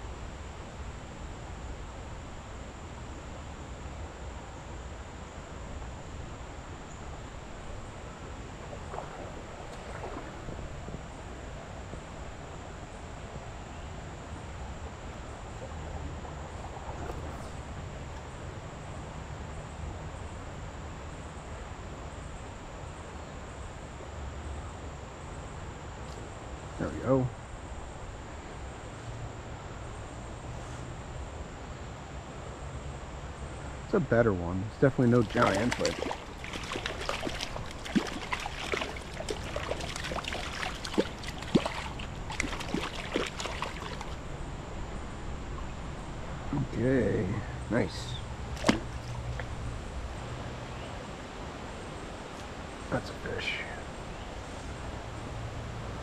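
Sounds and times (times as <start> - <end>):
creek water rushing: 4.1 - 13.7, 33.1 - 56.0
fish splashing at surface: 35.1 - 44.2, 48.5 - 49.6.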